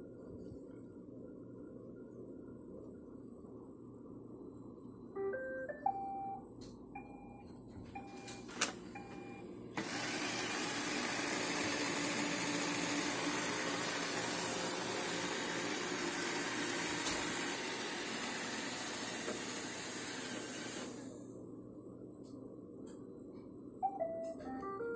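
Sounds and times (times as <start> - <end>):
robot vacuum whirring: 9.8 - 21.0.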